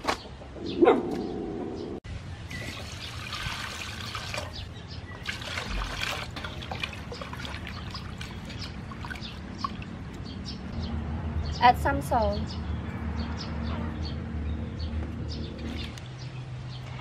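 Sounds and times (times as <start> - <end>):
water poured into metal bowl: 2.5 - 4.6.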